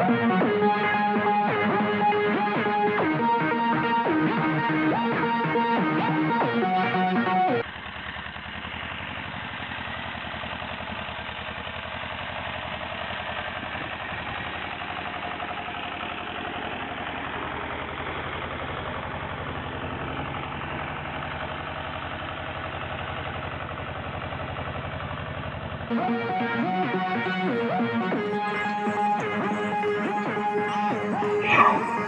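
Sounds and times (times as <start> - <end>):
tractor engine chugging: 7.6 - 32.0.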